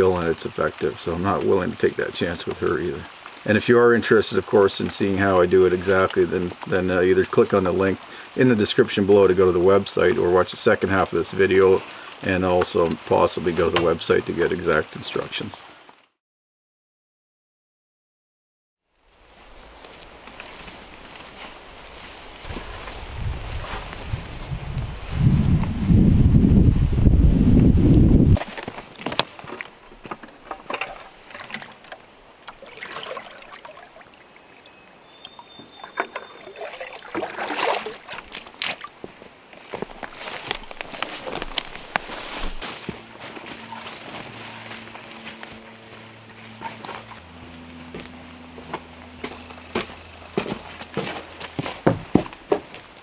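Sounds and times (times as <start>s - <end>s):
water sloshing into a pail: 29.4s - 39.0s
booted footsteps on wooden planks: 37.2s - 53.0s.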